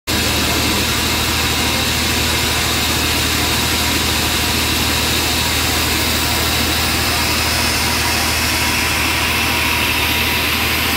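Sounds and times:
band sawmill running: 0:00.1 - 0:10.9.

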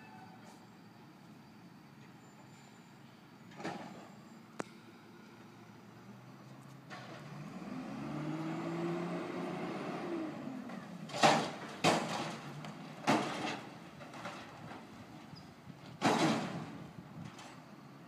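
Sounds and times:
garbage truck engine revving: 0:07.0 - 0:13.6.

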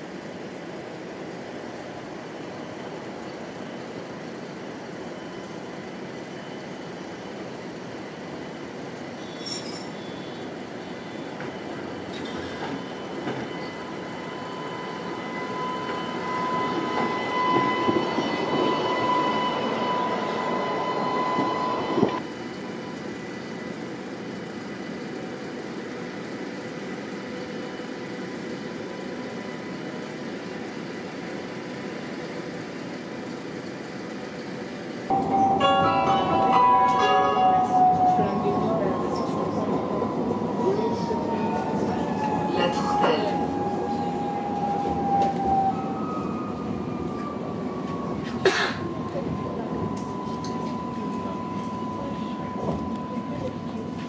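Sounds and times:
tram passing on rails: 0:00.0 - 0:54.0
high whine: 0:35.1 - 0:39.8.

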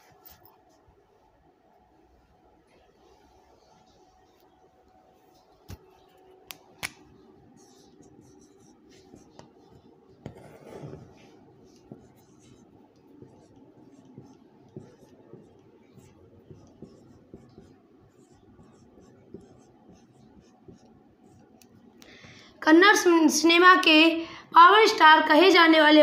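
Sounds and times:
marker writing on whiteboard: 0:05.3 - 0:21.9.

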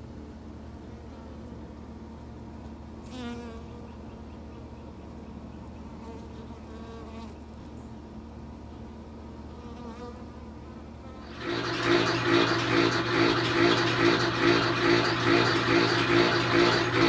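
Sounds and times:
honey bees buzzing: 0:09.7 - 0:17.0.

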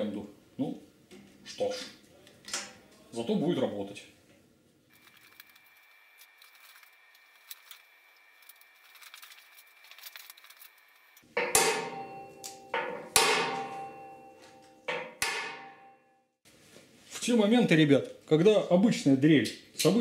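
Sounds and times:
hammer striking steel frame: 0:11.3 - 0:16.2.

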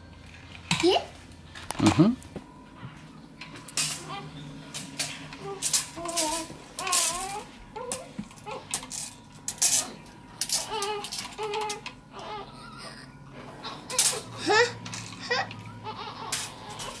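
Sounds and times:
toys clicking and clattering: 0:04.7 - 0:12.0.

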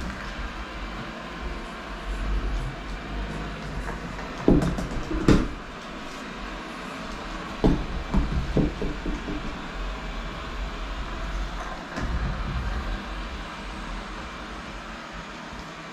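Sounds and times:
robot vacuum motor hum: 0:00.0 - 0:15.9
vacuum knocking against wooden ramp: 0:03.7 - 0:05.7, 0:07.2 - 0:09.8, 0:11.5 - 0:13.0.

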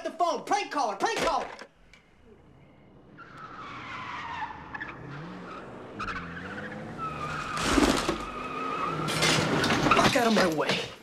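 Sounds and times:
car engine revving: 0:02.4 - 0:09.9
car tyres screeching: 0:02.5 - 0:10.5
loud car crash: 0:07.1 - 0:10.3.

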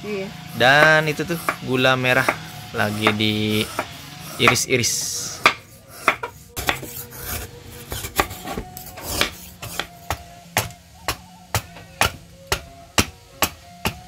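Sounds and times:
knife scraping sugar: 0:02.2 - 0:09.9.

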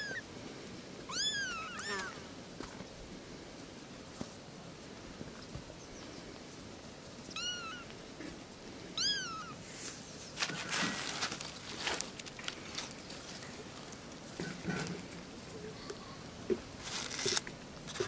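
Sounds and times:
rustling in grass and dry leaves: 0:00.0 - 0:18.0
kittens mewing: 0:01.1 - 0:02.2, 0:07.3 - 0:07.9, 0:09.0 - 0:09.6.

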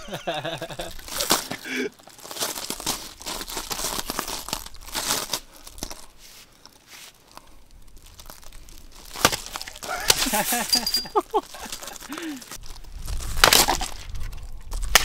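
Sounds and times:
wood crackling and tearing: 0:00.5 - 0:15.0
boots crunching on gravel: 0:07.9 - 0:14.0.

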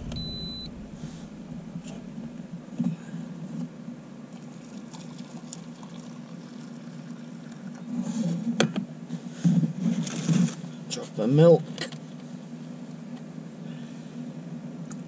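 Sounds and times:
low hum: 0:00.0 - 0:05.0
water pouring into mug: 0:04.6 - 0:06.8.

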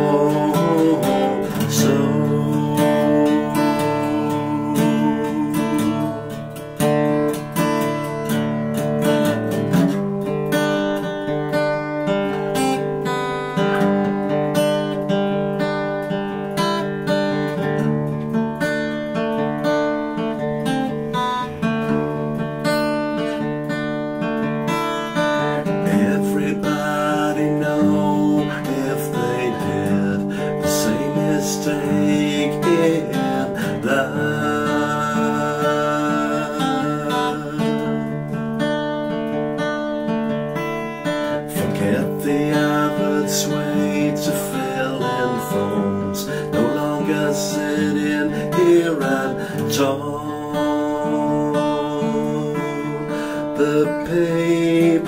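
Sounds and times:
man singing: 0:00.0 - 0:07.2, 0:25.4 - 0:38.4, 0:41.3 - 0:55.0
acoustic guitar strumming chords: 0:00.0 - 0:55.0.

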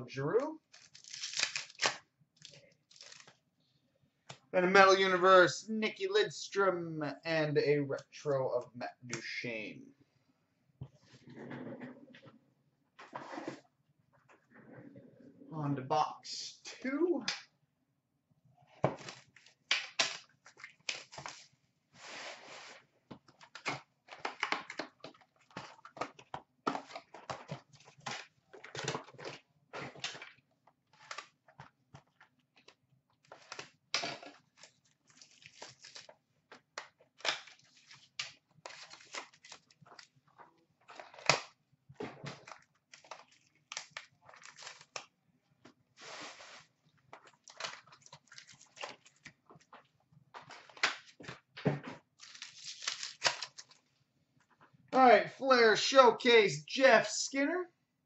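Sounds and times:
foil wrappers tearing and crinkling: 0:00.6 - 0:03.3, 0:34.4 - 0:36.2, 0:37.2 - 0:40.2, 0:42.4 - 0:45.1, 0:52.2 - 0:53.8.

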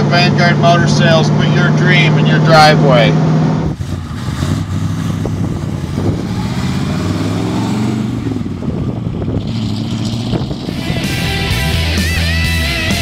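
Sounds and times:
car engine driving past: 0:03.1 - 0:11.8.

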